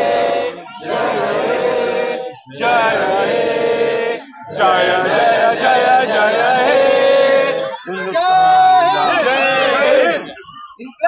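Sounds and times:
men singing in unison: 0.0s - 7.8s.

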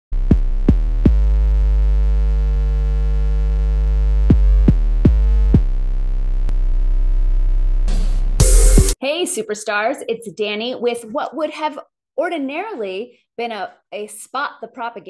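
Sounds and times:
deep bass: 0.1s - 9.0s
held synthesizer chord: 7.9s - 9.0s
sharp hits dropping in pitch: 7.9s - 9.0s.

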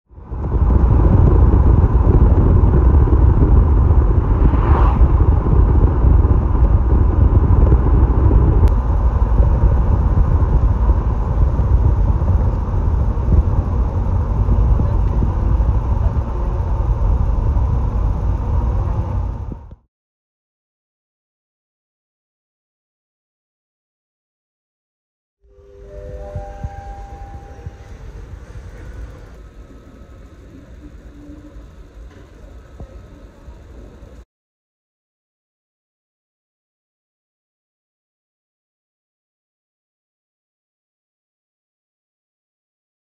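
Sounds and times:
car engine and tyre rumble: 0.1s - 19.8s, 25.6s - 34.2s.

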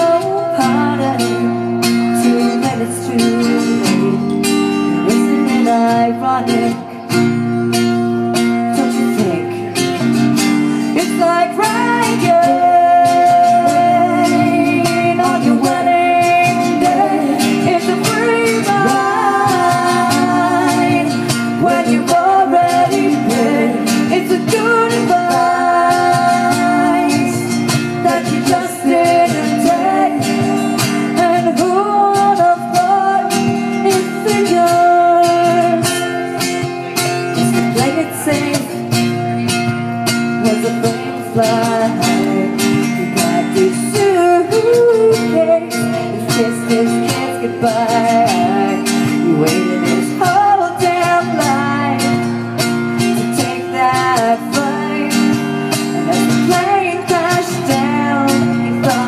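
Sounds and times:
strummed acoustic guitar: 0.0s - 59.0s
woman singing: 0.0s - 59.0s.

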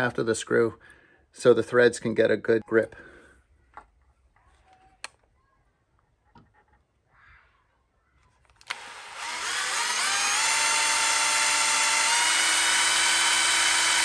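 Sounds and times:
cordless drill whining: 8.6s - 14.0s.

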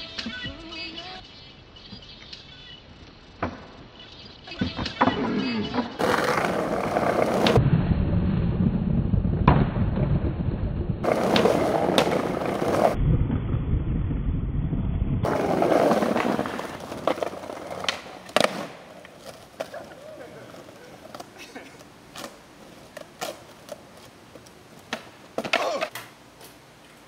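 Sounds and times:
skateboard wheels rolling: 1.8s - 7.8s, 8.6s - 13.0s, 15.2s - 26.6s
skateboard clacks: 4.5s - 7.6s, 11.0s - 13.0s, 15.2s - 26.1s.

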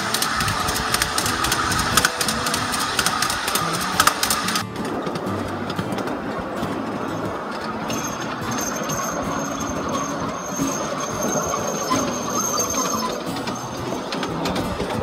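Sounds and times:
train wheels rattling on rails: 0.0s - 15.0s
thin high steady tone: 6.4s - 14.9s.

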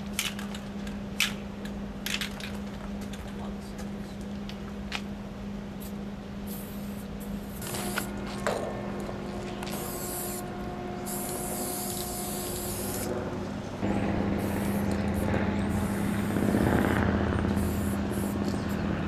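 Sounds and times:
low engine hum: 0.7s - 19.0s
spray paint can hissing: 5.8s - 8.2s, 9.6s - 10.5s, 11.1s - 13.1s, 14.4s - 16.4s, 17.5s - 18.8s.

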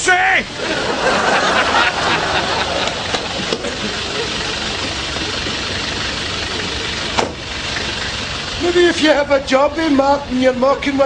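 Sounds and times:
diesel engine idling: 0.0s - 11.0s
car door clicks: 3.1s - 3.7s, 6.6s - 7.5s.

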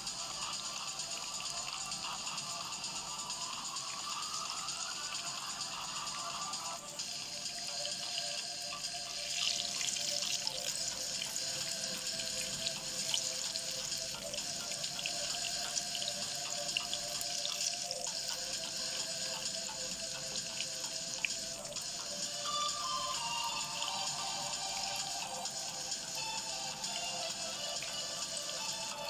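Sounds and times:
food sizzling in oil: 6.1s - 18.1s.

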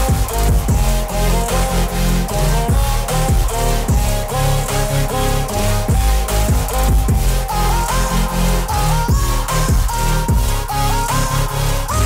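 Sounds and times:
electronic music with bass beat: 0.0s - 12.0s.

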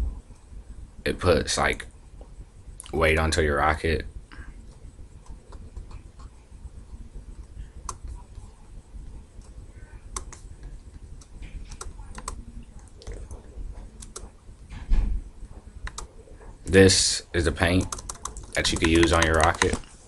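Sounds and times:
mouse and keyboard clicks: 14.0s - 14.3s, 15.8s - 16.1s, 17.8s - 19.8s.

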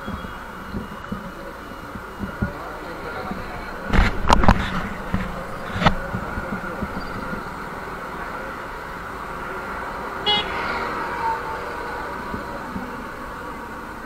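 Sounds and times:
vehicle horn toot: 0.0s - 0.6s, 10.2s - 11.6s
street traffic: 0.0s - 14.0s.

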